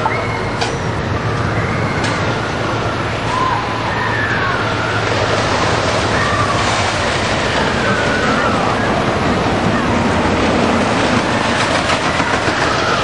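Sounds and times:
roller coaster rumbling roar: 0.0s - 13.0s.

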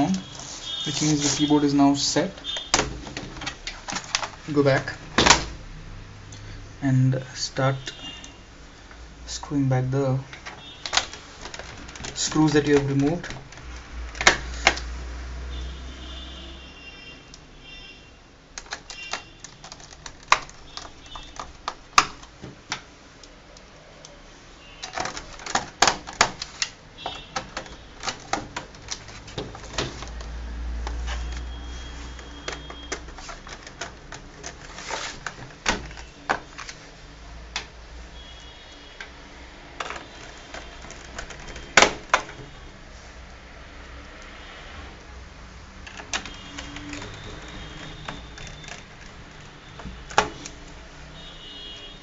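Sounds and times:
laptop being handled: 0.0s - 5.6s, 10.2s - 15.0s, 18.6s - 23.0s, 24.6s - 43.1s, 45.7s - 52.0s.

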